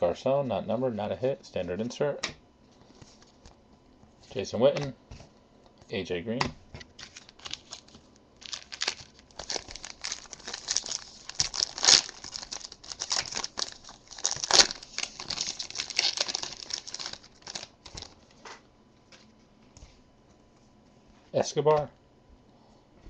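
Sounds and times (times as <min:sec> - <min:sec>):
foil wrapper ripping: 0:07.0 - 0:18.2
foil wrapper crackling: 0:07.0 - 0:18.3
wrapper rustling: 0:07.0 - 0:18.4.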